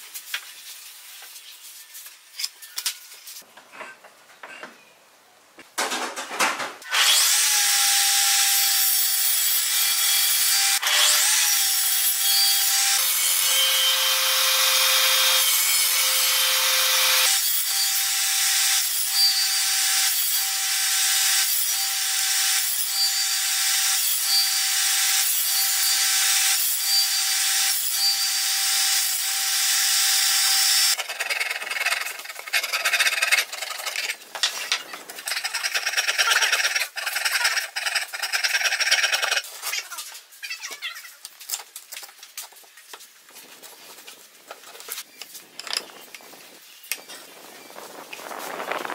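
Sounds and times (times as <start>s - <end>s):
saw cutting wooden board: 6.8s - 39.8s
table saw whining: 6.9s - 31.9s.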